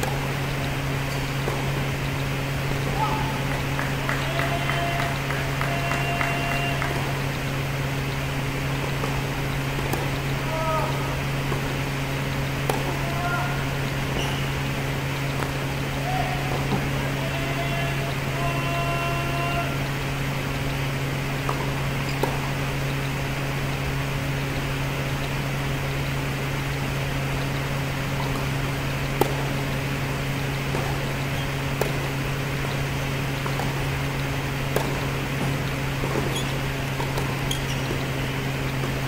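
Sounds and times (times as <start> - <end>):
tennis ball struck by racket: 0.0 - 0.5, 8.7 - 13.2, 21.4 - 22.6, 28.2 - 29.8, 30.6 - 38.2
ventilation hum: 0.0 - 39.0.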